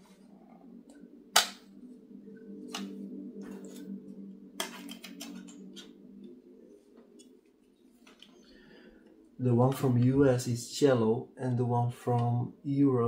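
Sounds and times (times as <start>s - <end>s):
faint low hum: 0.0s - 13.0s
plastic cases clicking: 4.6s - 5.8s.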